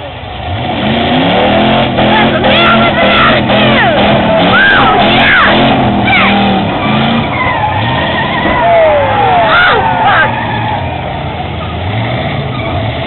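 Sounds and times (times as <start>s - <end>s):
car engines revving: 0.0s - 13.0s
crowd whooping and screaming: 2.4s - 11.1s.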